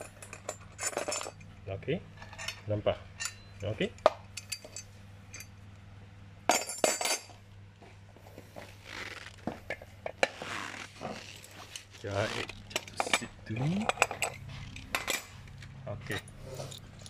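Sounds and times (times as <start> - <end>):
steady low hum: 0.0 - 17.0
ringing metal clinks: 3.2 - 3.7
metal rubbing and sliding on wood: 8.3 - 17.0.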